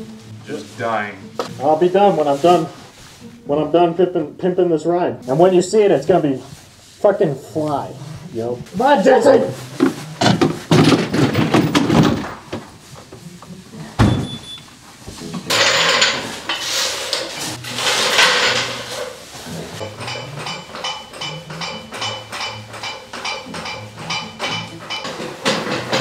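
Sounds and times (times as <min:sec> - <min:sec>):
background music with steady beat: 0:00.0 - 0:26.0
floor jack clattering and pumping: 0:09.7 - 0:12.8, 0:15.1 - 0:26.0.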